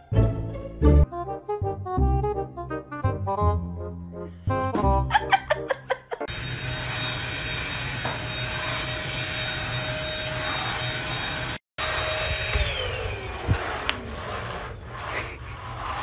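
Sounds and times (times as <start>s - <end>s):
vacuum cleaner motor whining: 6.3s - 15.2s.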